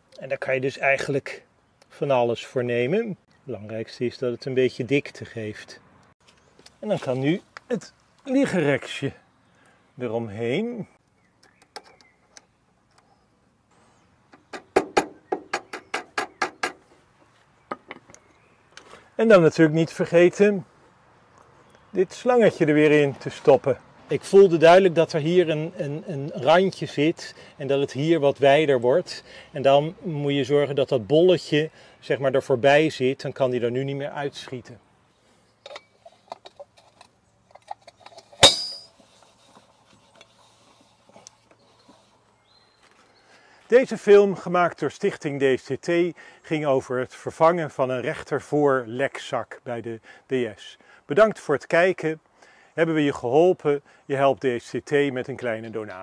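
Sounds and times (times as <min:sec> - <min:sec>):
metal hubcap clanging: 0:37.5 - 0:39.0.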